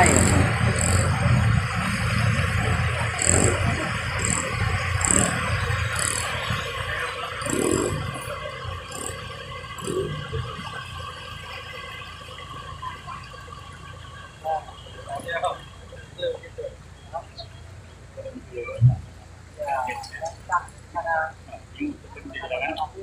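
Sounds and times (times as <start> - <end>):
water washing around wheels: 0.0 - 16.2
truck engine running: 0.0 - 22.9.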